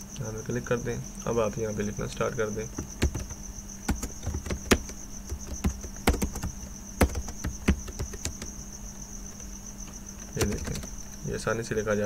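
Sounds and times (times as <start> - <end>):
computer keyboard clicks: 2.8 - 8.5, 10.3 - 10.9.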